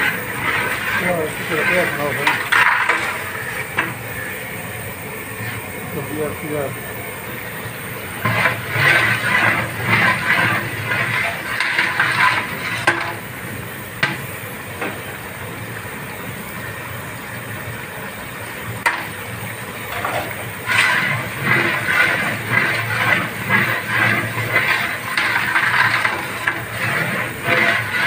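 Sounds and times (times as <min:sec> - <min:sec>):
ladle sloshing and scraping pot: 0:00.0 - 0:04.4, 0:07.9 - 0:14.2, 0:19.8 - 0:28.0.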